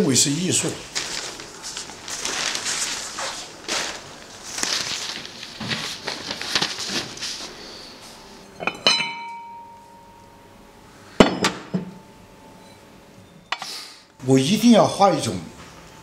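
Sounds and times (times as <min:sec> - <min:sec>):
ceramic bowls clinking: 0:08.5 - 0:10.3
heavy knocks of bowls: 0:08.6 - 0:09.8, 0:11.2 - 0:12.0.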